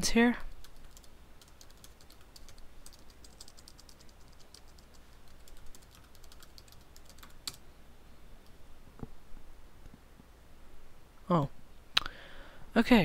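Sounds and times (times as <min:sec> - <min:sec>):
typing on computer keyboard: 0:00.5 - 0:07.6.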